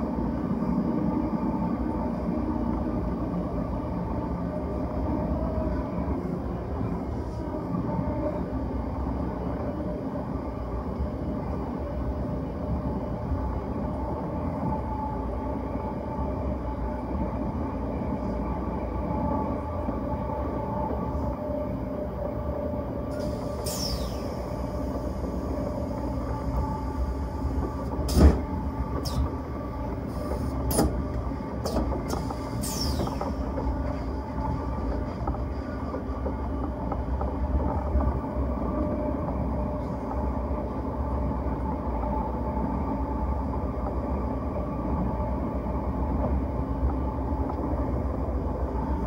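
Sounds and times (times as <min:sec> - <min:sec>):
train rolling rumble: 0:00.0 - 0:49.0.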